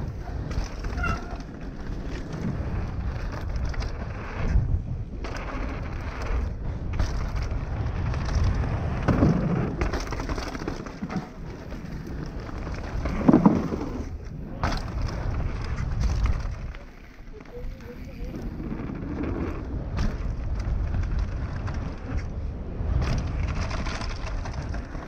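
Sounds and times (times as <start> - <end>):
bike clattering over bumps: 0.0 - 25.0
tyres rumbling over dirt: 0.0 - 25.0
wind buffeting microphone: 0.0 - 25.0.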